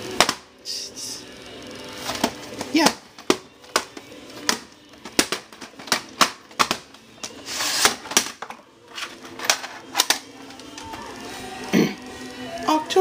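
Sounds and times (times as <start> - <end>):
plastic tape cases clicking: 2.1 - 8.6, 9.3 - 10.9.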